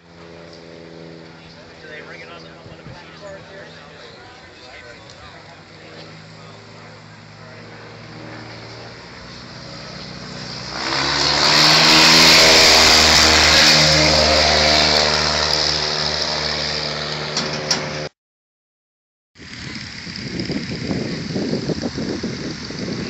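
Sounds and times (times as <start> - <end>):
plane piston engine passing: 0.0 - 18.1.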